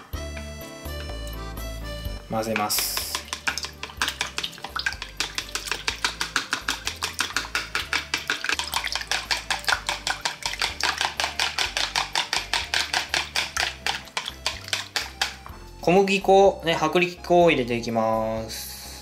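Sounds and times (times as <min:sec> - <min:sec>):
chopsticks clicking against plastic bowl: 0:02.5 - 0:15.4.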